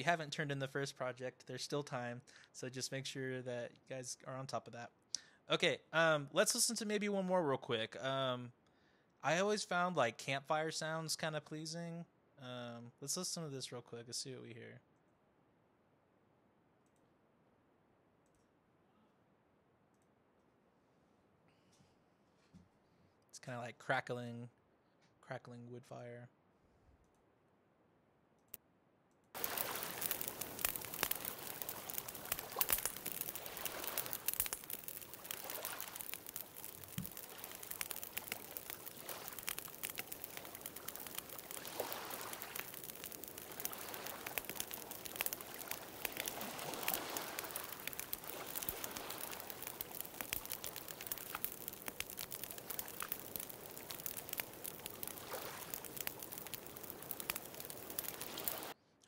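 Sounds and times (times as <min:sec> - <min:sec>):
campfire crackling and popping: 0:00.0 - 0:00.4, 0:29.3 - 0:58.8
lake waves washing: 0:29.4 - 0:58.8.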